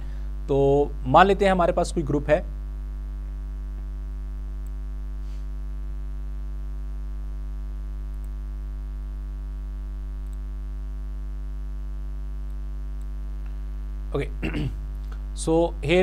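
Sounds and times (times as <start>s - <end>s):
electrical mains hum: 0.0s - 16.0s
faint clicks: 10.2s - 10.5s.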